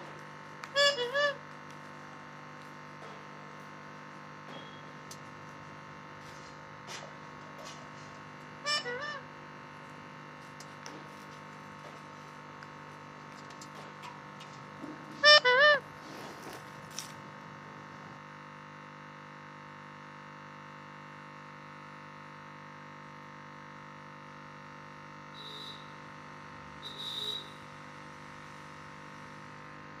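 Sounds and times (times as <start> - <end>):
steady background hum: 0.0 - 18.4
brief high squeaks: 8.7 - 9.2.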